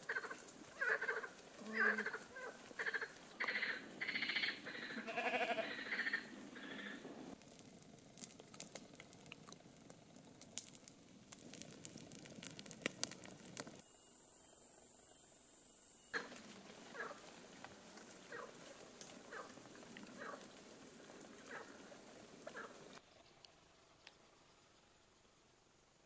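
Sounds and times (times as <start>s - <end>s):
campfire crackling and popping: 0.0s - 4.8s, 5.9s - 14.0s, 16.2s - 23.0s.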